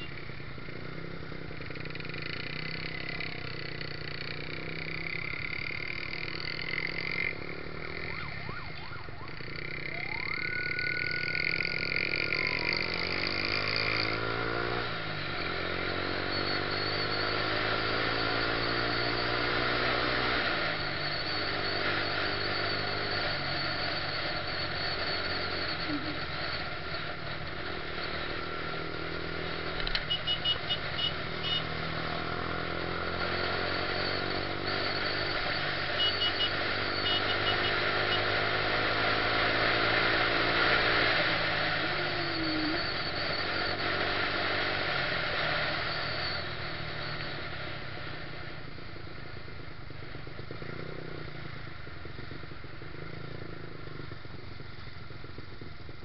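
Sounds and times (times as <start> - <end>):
motorcycle engine running: 0.0 - 56.0
short high beeps: 7.4 - 13.3, 30.0 - 31.8, 33.3 - 38.3.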